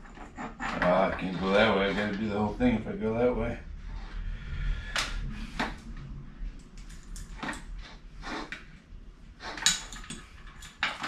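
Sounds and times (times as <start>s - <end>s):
wire lights scraping and ticking: 0.0s - 2.8s.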